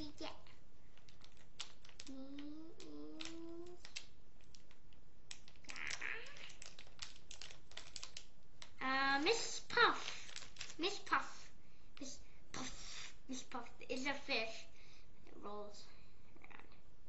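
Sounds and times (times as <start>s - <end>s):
wrapper crinkling: 0.8s - 12.1s
child humming: 2.0s - 3.9s, 5.7s - 6.6s.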